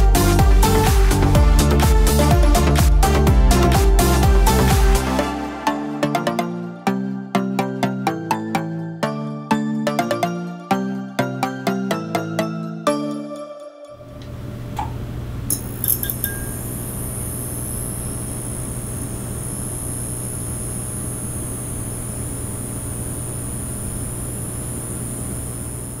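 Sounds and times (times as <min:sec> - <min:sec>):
low hum with high hiss: 0:14.0 - 0:26.0
glassy clinks: 0:15.5 - 0:17.0.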